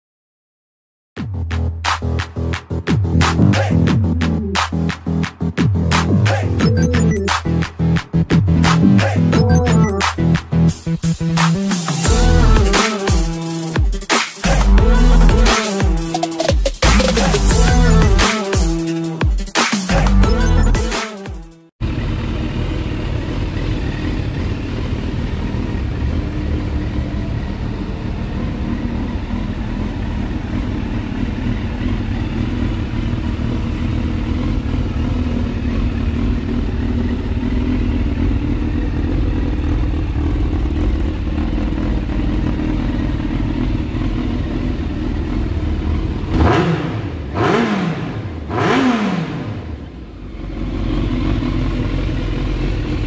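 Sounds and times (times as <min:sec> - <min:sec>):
motorcycle engine idling and revving: 0:01.2 - 0:53.0.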